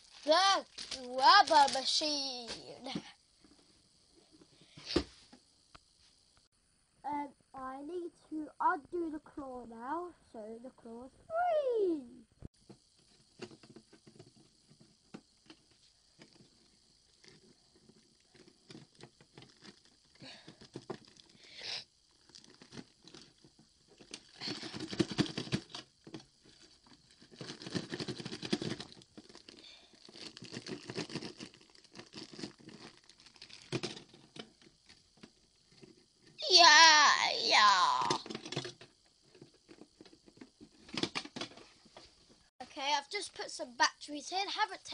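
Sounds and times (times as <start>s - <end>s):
plastic bag crinkling: 0.0s - 2.6s, 22.2s - 25.7s, 26.5s - 34.4s.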